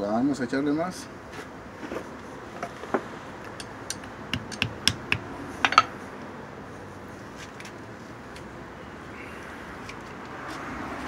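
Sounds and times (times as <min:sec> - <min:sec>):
sharp metal ticks: 0:03.6 - 0:05.3.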